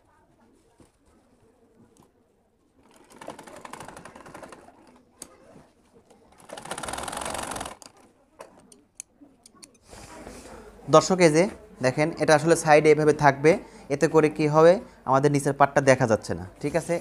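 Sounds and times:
sewing machine stitching: 2.8 - 5.0, 6.3 - 8.0.

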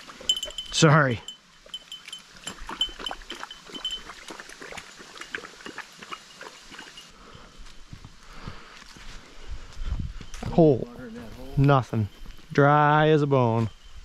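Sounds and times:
small bell tinkling: 0.1 - 4.3, 10.2 - 14.0
dog splashing through puddle: 2.4 - 7.0.

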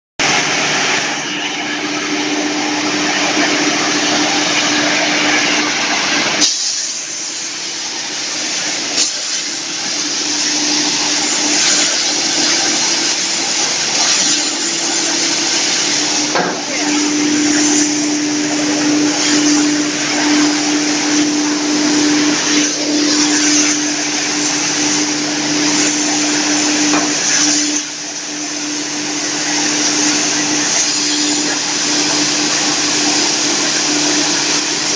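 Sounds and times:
hammer mill whirring: 0.2 - 34.9.

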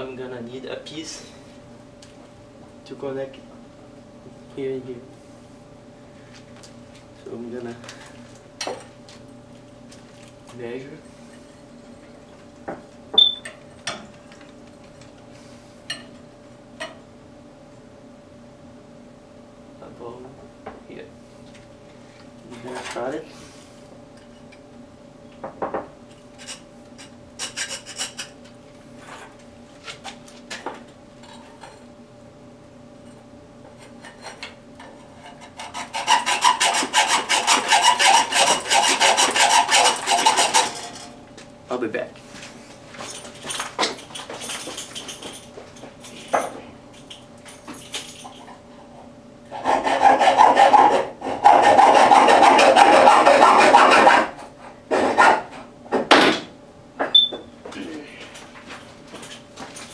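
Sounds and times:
faint steady hum: 0.0 - 59.9
hacksaw cutting metal pipe: 27.4 - 28.3, 34.1 - 41.1, 49.5 - 55.5.

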